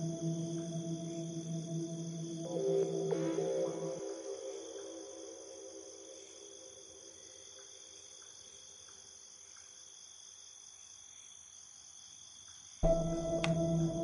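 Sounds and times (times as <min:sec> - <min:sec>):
low music drone: 0:00.0 - 0:06.2, 0:12.8 - 0:14.0
crickets trilling: 0:00.0 - 0:14.0.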